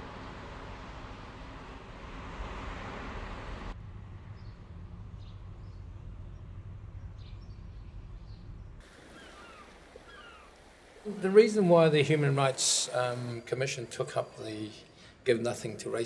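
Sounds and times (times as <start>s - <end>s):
road traffic rushing: 0.0s - 7.4s
low rumble: 0.0s - 8.8s
bird chirps: 5.2s - 10.5s.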